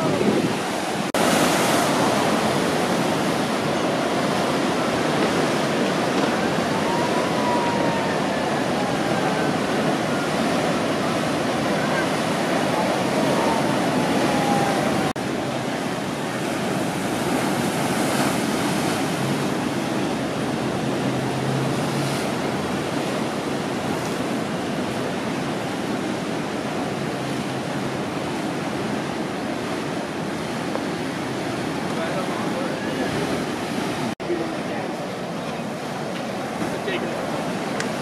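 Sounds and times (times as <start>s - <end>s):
ocean waves breaking: 0.0s - 38.0s.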